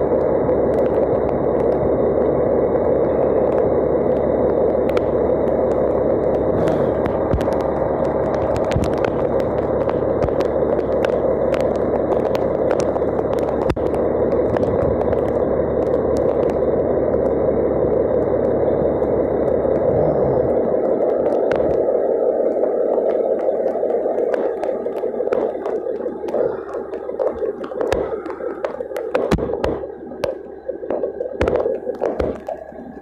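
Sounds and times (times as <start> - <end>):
raindrops tapping: 2.7 - 17.4, 20.5 - 33.0
diesel engine running: 5.9 - 20.8.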